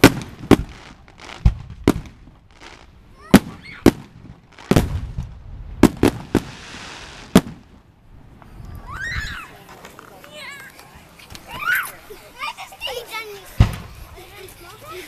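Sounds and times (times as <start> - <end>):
firework hiss: 0.0 - 7.9
firework bangs: 0.0 - 8.4, 13.6 - 14.1.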